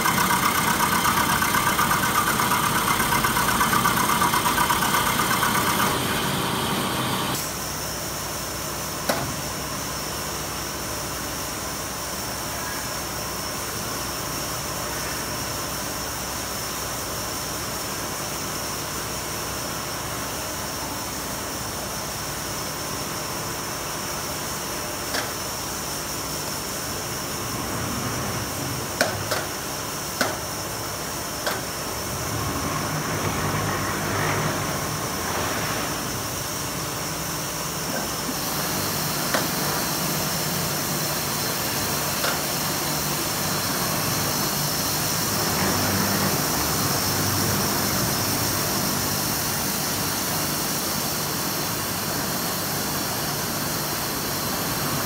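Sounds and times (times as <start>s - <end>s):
foam-cutting machine humming: 0.0s - 7.5s, 27.3s - 55.0s.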